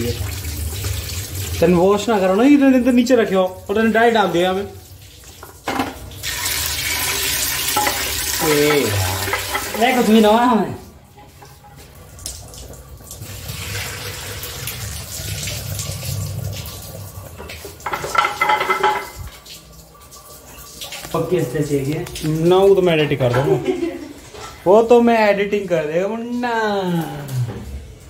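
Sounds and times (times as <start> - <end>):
tap running into sink: 17.3 - 19.4.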